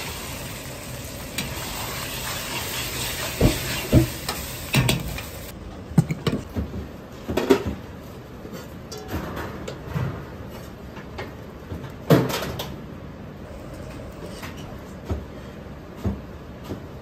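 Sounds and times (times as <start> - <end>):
ladles clanking on pots: 2.2 - 6.6.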